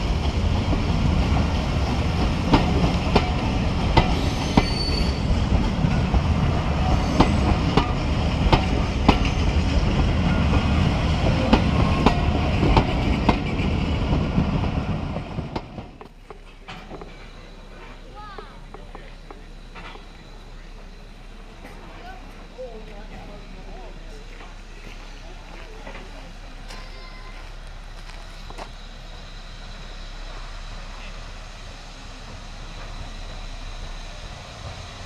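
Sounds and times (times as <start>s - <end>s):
wheels clicking over rail joints: 0.0s - 20.2s
train wheels rumbling on rails: 0.0s - 35.0s.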